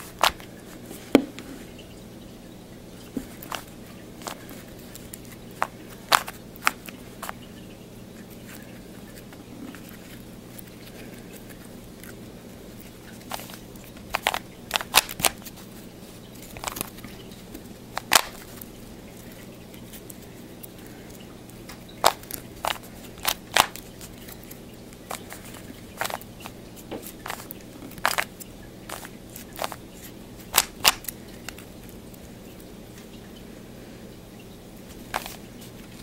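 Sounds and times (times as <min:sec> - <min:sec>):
steady low hum: 0:00.0 - 0:36.0
puzzle cube layers clicking: 0:14.1 - 0:15.4, 0:18.0 - 0:18.5, 0:22.0 - 0:23.8, 0:27.2 - 0:28.3, 0:28.9 - 0:29.8, 0:30.5 - 0:31.1.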